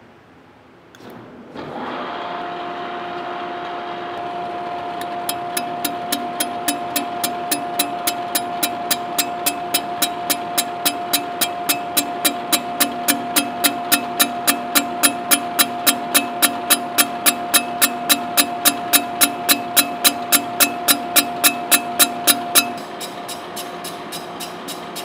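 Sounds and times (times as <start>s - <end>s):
mill spindle whine: 1.6s - 25.0s
fly cutter ticking on iron: 5.0s - 25.0s.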